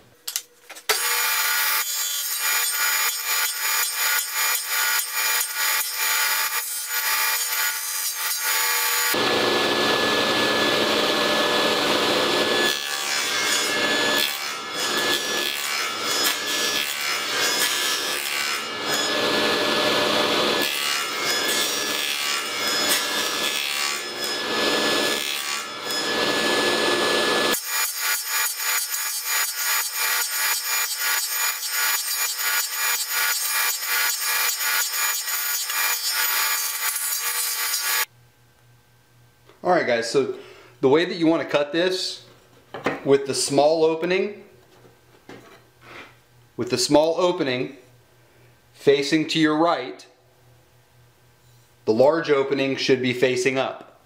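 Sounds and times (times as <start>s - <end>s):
table saw cutting wood: 0.9s - 38.1s.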